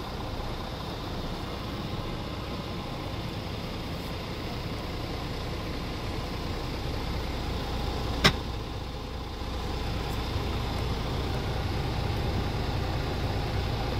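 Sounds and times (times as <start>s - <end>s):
diesel truck engine idling: 0.0s - 13.9s.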